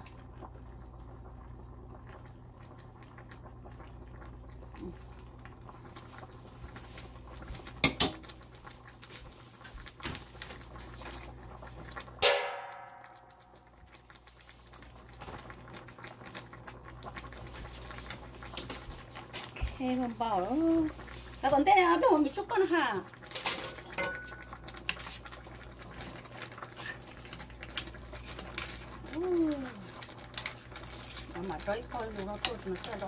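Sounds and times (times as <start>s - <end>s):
sauce bubbling in a pan: 0.0s - 33.0s.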